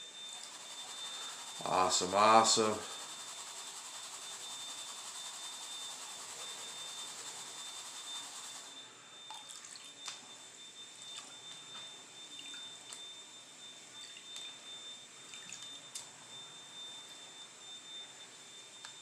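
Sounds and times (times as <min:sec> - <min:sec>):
water drips and small splashes: 0:09.3 - 0:10.3, 0:11.0 - 0:11.7, 0:12.3 - 0:13.0, 0:14.0 - 0:14.6, 0:15.2 - 0:16.1.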